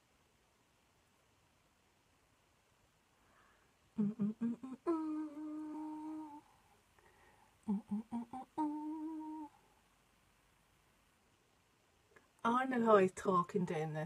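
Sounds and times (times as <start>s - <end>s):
woman humming: 4.0s - 6.6s, 7.6s - 9.6s.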